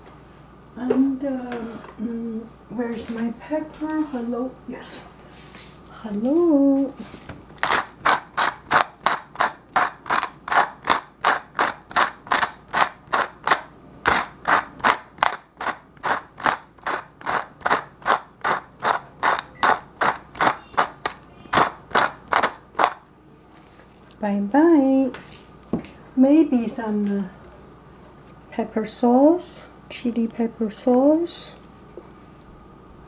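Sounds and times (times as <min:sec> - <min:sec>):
pepper mill grinding: 0:07.5 - 0:23.0.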